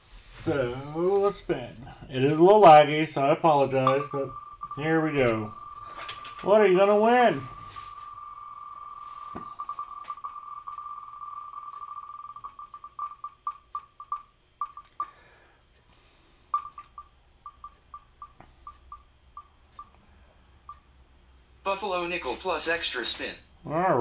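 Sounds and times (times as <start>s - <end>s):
spinning wheel ticking: 2.4s - 15.2s, 16.5s - 20.0s.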